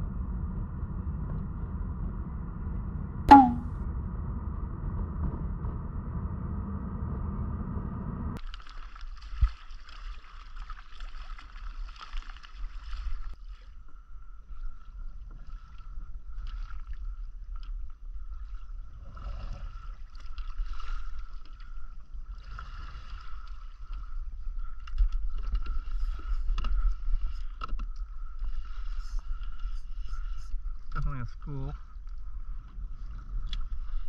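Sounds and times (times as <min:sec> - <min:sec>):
wind rumble on microphone: 0:00.0 - 0:08.4
water lapping against kayak hull: 0:08.4 - 0:34.0.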